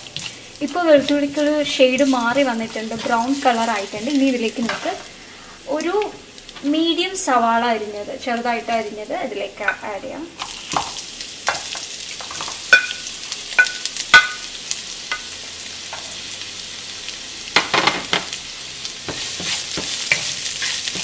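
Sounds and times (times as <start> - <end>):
onion sizzling in a pan: 0.0 - 21.0
wooden spatula knocking on pan: 13.6 - 14.4, 19.1 - 20.0.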